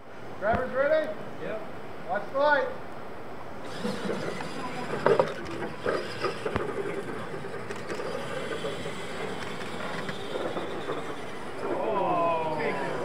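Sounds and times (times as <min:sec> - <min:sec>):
toy truck motors running: 0:03.6 - 0:13.0.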